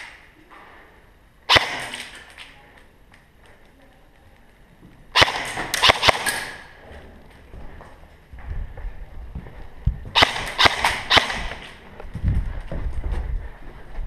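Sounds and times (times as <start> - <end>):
airsoft guns firing: 1.5 - 2.3, 5.1 - 6.7, 10.1 - 11.8.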